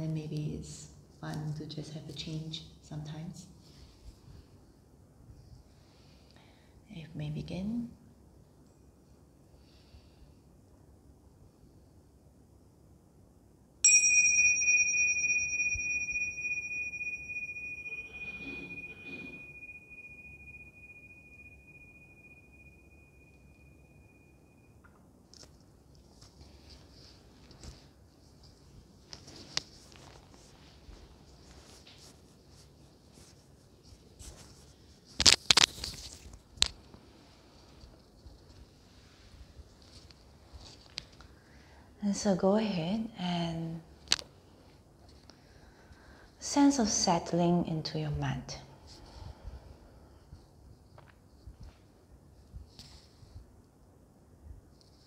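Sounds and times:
tingsha cymbals ringing: 13.8s - 24.8s.

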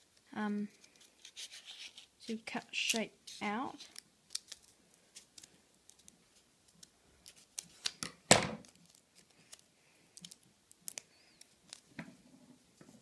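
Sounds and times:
paper handling noises: 0.6s - 11.9s
thump: 8.3s - 8.6s.

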